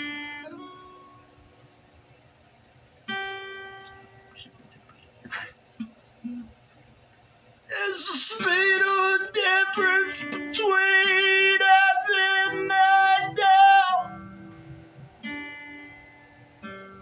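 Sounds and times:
acoustic guitar strumming: 0.0s - 2.0s, 3.0s - 4.6s, 7.6s - 17.0s
man singing: 7.7s - 14.3s.

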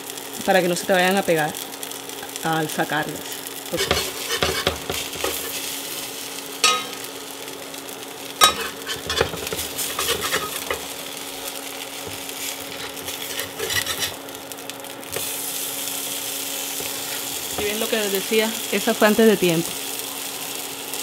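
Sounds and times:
food sizzling in oil: 0.0s - 21.0s
metal spatula scraping pan: 3.7s - 5.7s, 8.4s - 10.9s, 12.1s - 14.2s.

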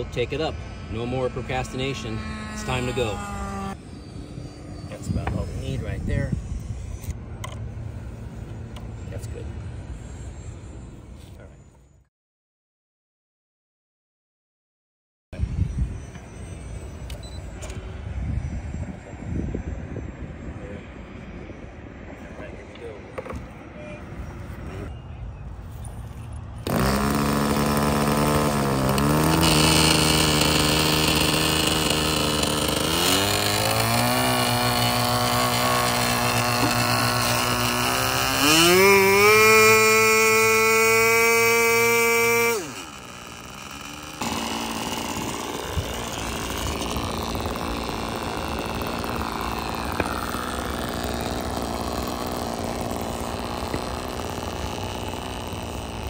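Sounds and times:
model plane engine revving: 0.0s - 11.2s, 26.6s - 56.0s.

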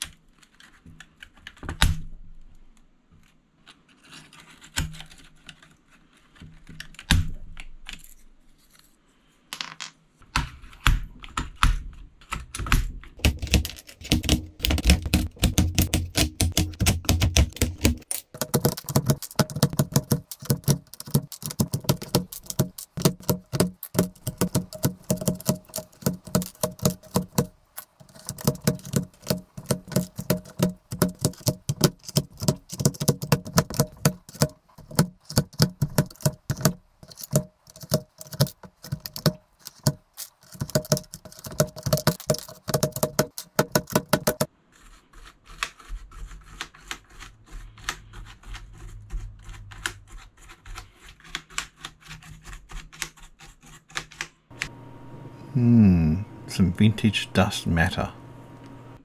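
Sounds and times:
plastic keycaps clicking off: 13.2s - 44.5s
brush scratching: 13.2s - 54.2s.

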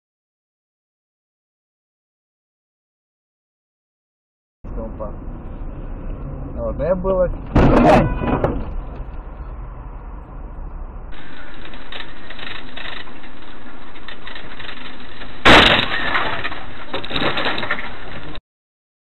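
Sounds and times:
road noise: 4.6s - 18.4s
car crash with breaking glass: 11.2s - 18.4s.

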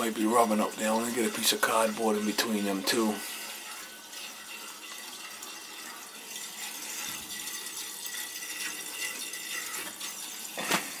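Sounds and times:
water rushing through pipes: 0.0s - 11.0s.

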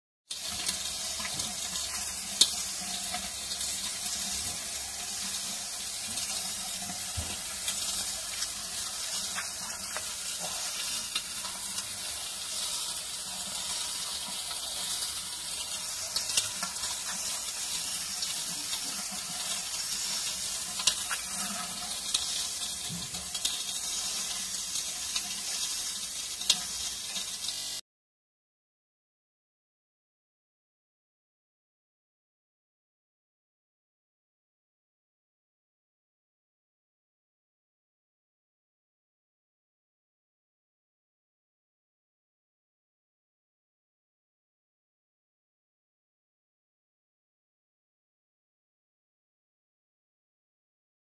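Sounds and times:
gas barbecue hissing: 0.3s - 27.8s.

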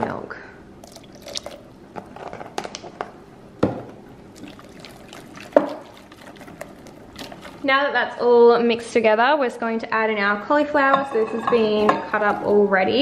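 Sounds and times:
whisk beating wet batter: 4.4s - 7.8s.

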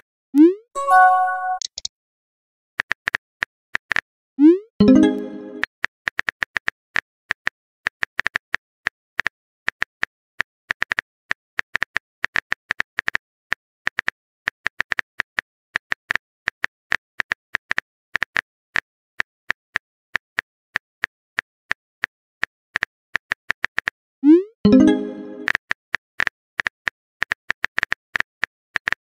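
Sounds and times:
phone keyboard typing clicks: 1.0s - 1.9s.

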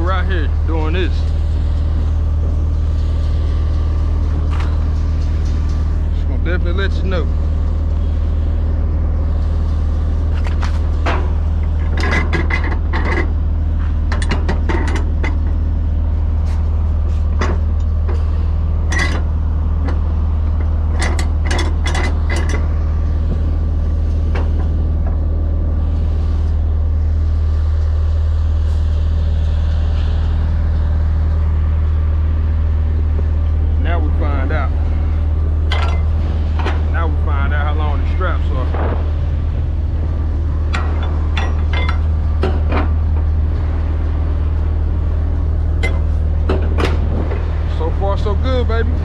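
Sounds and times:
low engine hum: 0.0s - 49.0s.

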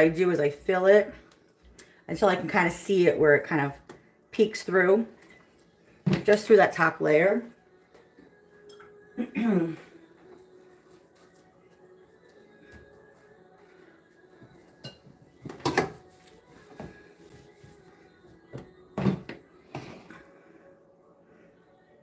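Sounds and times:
dishes and utensils clattering: 14.8s - 16.1s.

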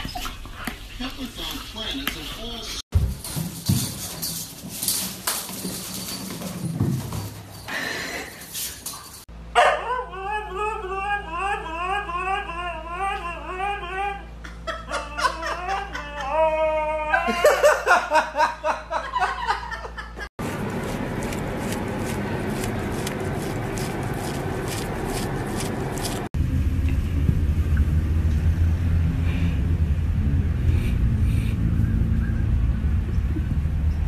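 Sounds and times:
dog howling and yipping: 9.6s - 17.4s.

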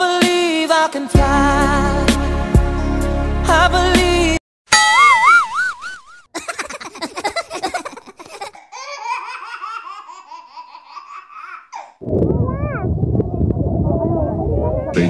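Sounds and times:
high-pitched laughter: 5.0s - 8.6s.

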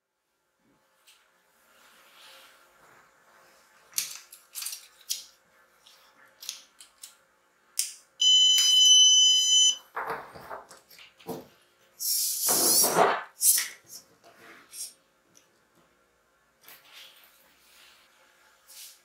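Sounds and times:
plastic parts clicking and rattling: 4.0s - 5.3s
loud steady electronic beep: 8.2s - 9.8s.

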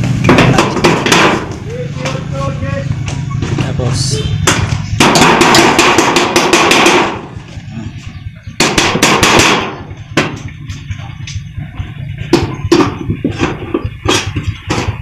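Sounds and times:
taps on sheet metal: 0.2s - 2.2s, 4.4s - 7.3s, 8.6s - 11.4s.

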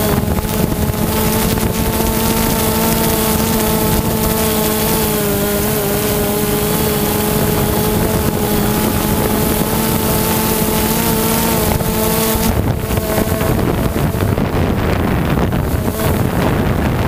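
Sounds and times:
drone propellers humming: 0.0s - 17.0s
wind buffeting microphone: 0.0s - 17.0s.

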